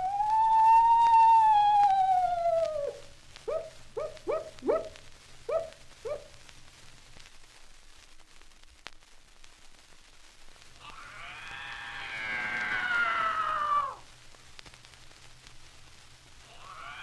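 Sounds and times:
screech owl cries: 0.0s - 4.9s, 10.8s - 14.0s, 16.6s - 17.0s
record surface noise and hum: 0.0s - 17.0s.

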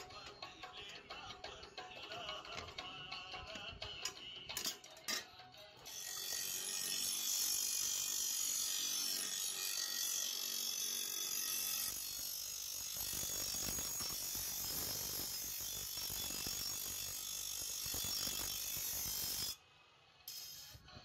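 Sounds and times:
bench grinder grinding steel: 5.8s - 19.6s, 20.3s - 21.0s.

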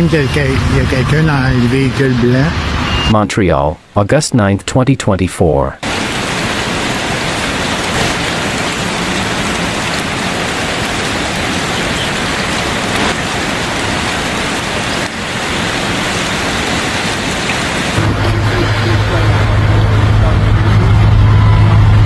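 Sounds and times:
heavy rain pouring: 0.0s - 3.2s, 5.8s - 22.0s
vehicle engine idling: 18.0s - 22.0s.

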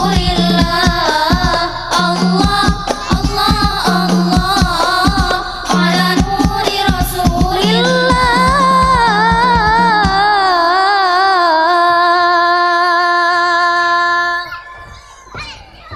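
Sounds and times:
percussive beats: 0.0s - 10.4s
girls singing a cappella: 0.0s - 15.8s.

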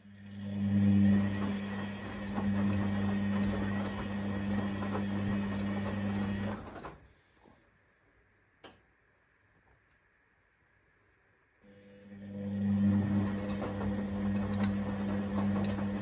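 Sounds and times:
washing machine motor hum: 0.0s - 7.2s, 11.7s - 16.0s.

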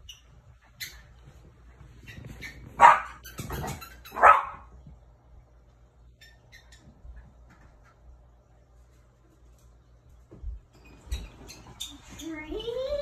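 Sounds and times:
dog barking: 2.8s - 3.2s, 4.1s - 4.7s.

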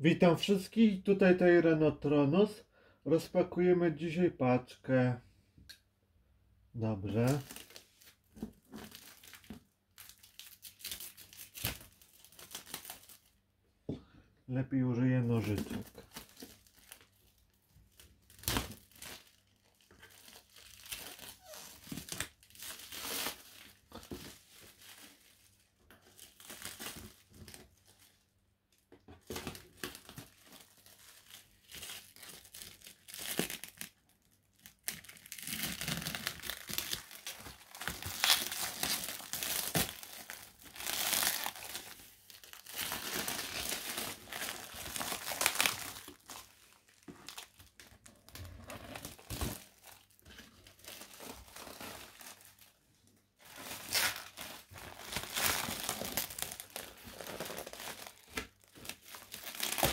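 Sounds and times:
plastic tearing and crinkling: 7.1s - 13.4s, 15.2s - 52.8s, 53.4s - 59.9s
scissors cutting plastic wrapping: 34.7s - 46.5s, 53.5s - 59.9s.

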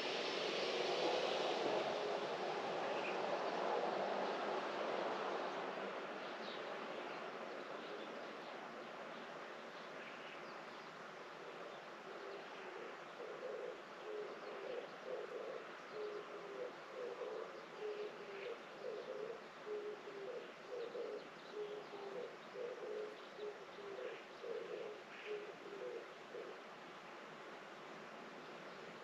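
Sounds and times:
dove cooing: 11.6s - 26.6s.

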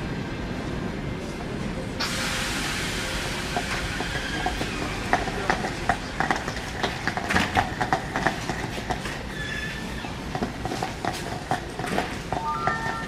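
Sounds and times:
train wheels knocking over rail joints: 3.5s - 9.3s, 10.3s - 13.0s
high wheel squeal: 3.7s - 5.4s, 9.2s - 10.3s.

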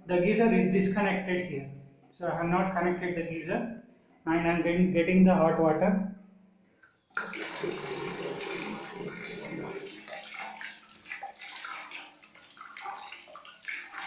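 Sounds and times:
water pouring into bucket: 7.1s - 14.0s.

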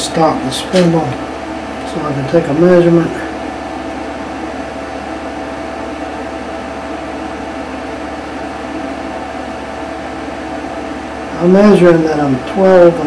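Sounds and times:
mechanical hum with tones: 0.0s - 13.0s.

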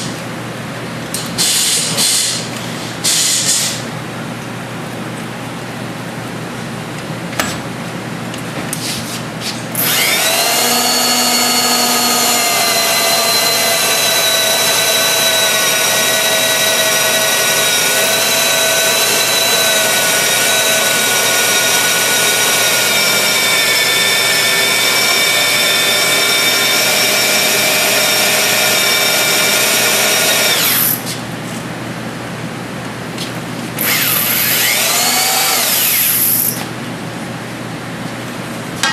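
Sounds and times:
drill whining through metal: 9.8s - 31.1s, 33.8s - 36.6s.

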